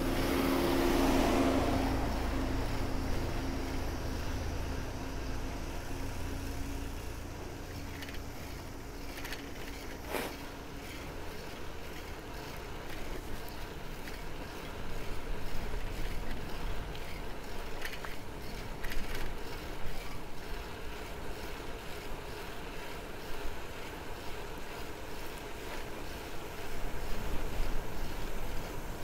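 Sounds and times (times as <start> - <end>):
bicycle tyres rumbling on asphalt: 0.0 - 29.0
light rattles: 5.2 - 24.0.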